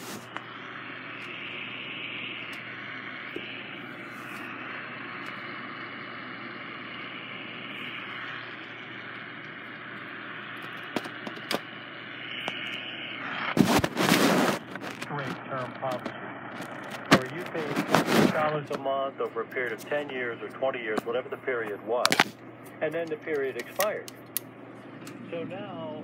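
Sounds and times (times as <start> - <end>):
radio static hiss: 0.0 - 24.1
radio station burst: 13.2 - 22.3.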